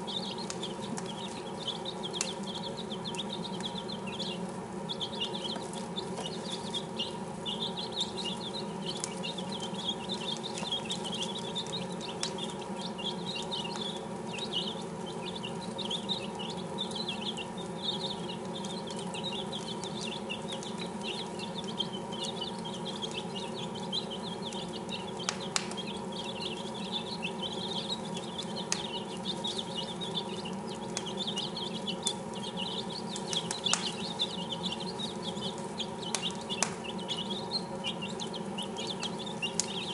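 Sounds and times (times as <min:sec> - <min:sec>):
chicks peeping: 0:00.0 - 0:39.9
steady low hum: 0:00.0 - 0:39.9
sharp clicks: 0:30.9 - 0:35.1, 0:36.0 - 0:36.9.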